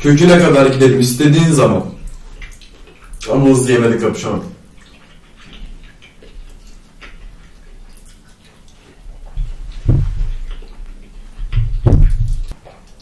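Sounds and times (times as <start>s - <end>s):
chewing fried food: 0.0s - 13.0s
low thumping: 9.4s - 10.7s, 11.4s - 12.6s.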